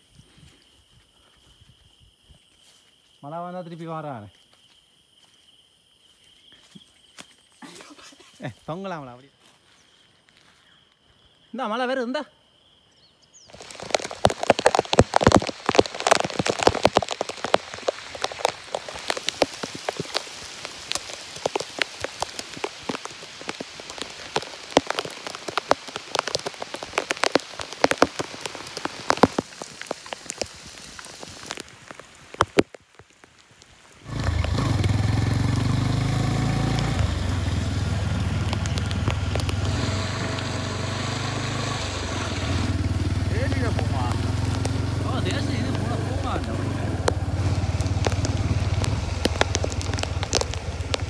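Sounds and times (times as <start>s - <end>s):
motorcycle rumbling: 13.5s - 29.3s, 34.0s - 51.0s
heavy rain patter: 13.5s - 51.0s.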